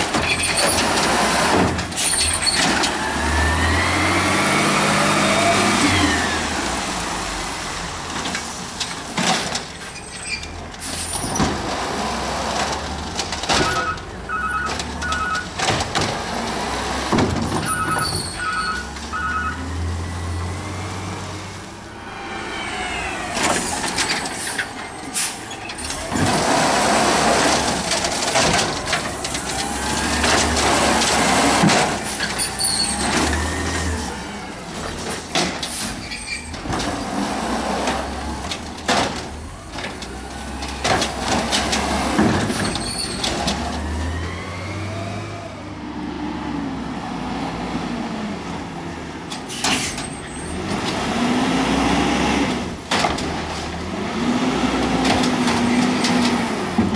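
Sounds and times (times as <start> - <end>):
diesel engine revving: 0.0 - 8.8, 10.6 - 56.9
air brakes hissing: 22.0 - 25.6.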